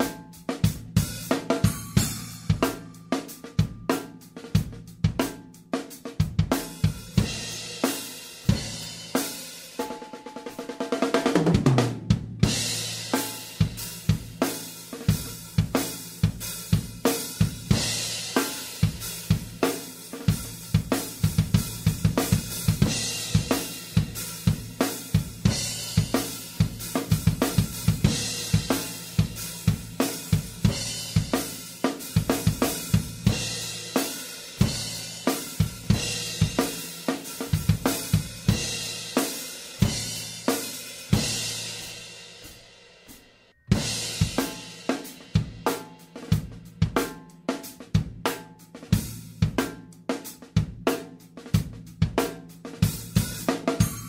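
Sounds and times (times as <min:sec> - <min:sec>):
cymbals: 0:01.0 - 0:04.2, 0:12.4 - 0:46.3, 0:53.1 - 0:54.0
snare drum: 0:09.8 - 0:54.0.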